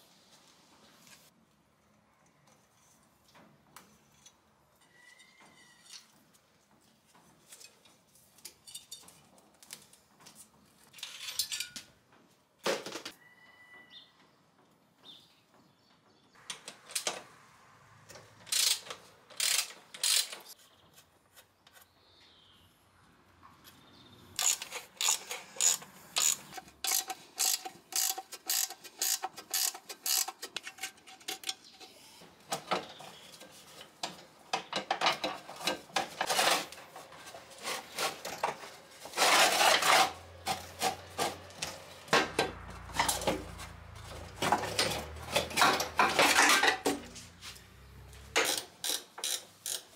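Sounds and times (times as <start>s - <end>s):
ratchet wrench clicking: 18.5s - 20.5s, 24.4s - 31.4s, 48.4s - 49.9s
metal clanks and rattles: 32.5s - 49.9s.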